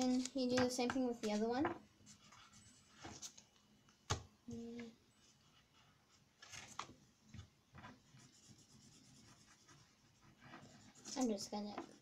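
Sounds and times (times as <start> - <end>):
paper rustling: 6.4 - 6.9.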